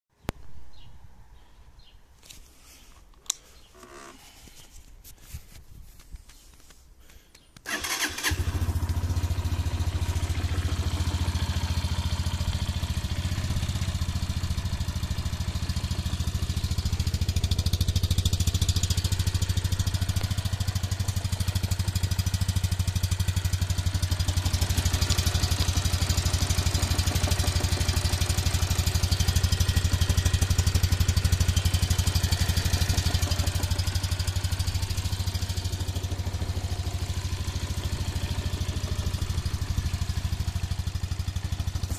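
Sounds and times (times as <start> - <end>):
motorcycle engine starting and idling: 7.6 - 41.9.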